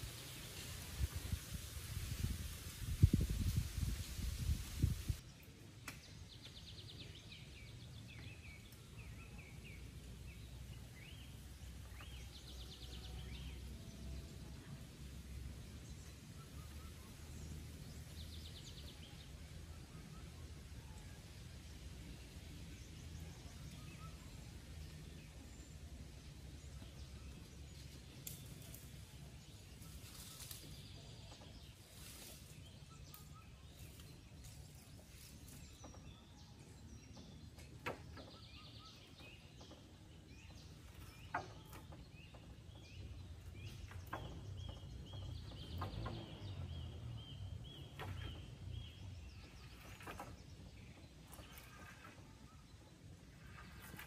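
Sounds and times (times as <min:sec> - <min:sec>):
bird chirps: 0:22.8 - 0:54.0.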